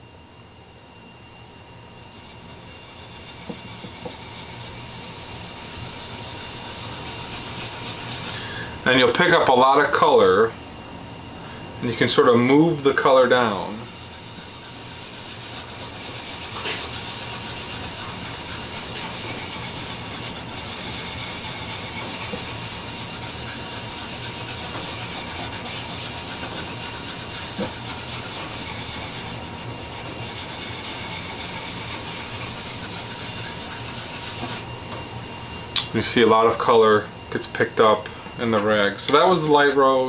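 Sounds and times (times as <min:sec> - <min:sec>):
cloth rubbing on wood: 0:02.0 - 0:08.4, 0:13.5 - 0:34.7.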